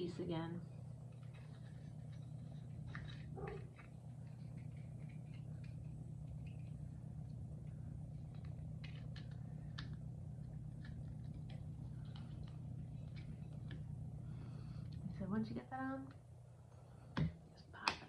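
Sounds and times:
steady low hum: 0.0s - 18.0s
small clicks and taps: 1.1s - 13.9s.

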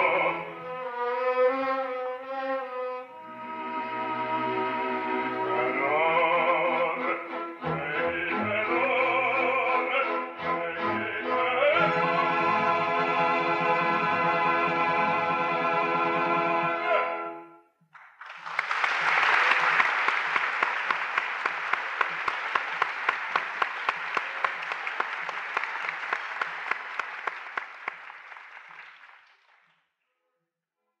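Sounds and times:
audience applause: 17.9s - 29.8s.

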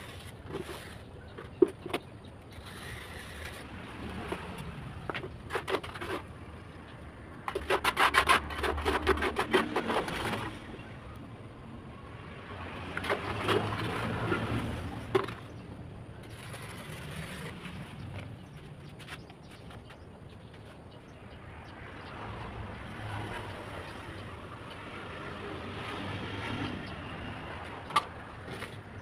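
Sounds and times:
scraping wet mortar: 0.0s - 6.3s, 7.4s - 10.7s, 12.9s - 15.4s.

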